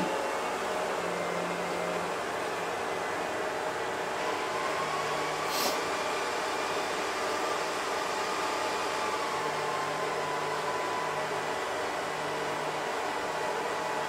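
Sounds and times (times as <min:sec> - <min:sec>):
sharp high hiss: 0:05.4 - 0:05.9.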